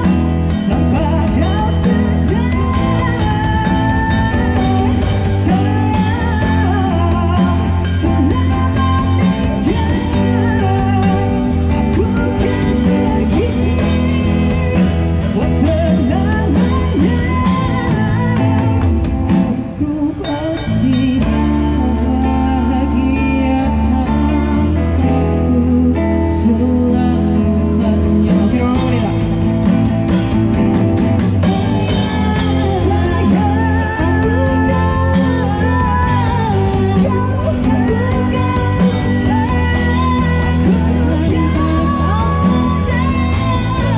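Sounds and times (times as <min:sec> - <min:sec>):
person singing into microphone: 0:00.0 - 0:43.9.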